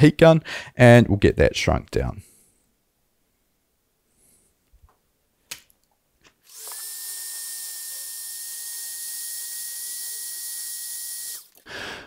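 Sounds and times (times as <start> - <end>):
heat gun whining: 6.4 - 11.7.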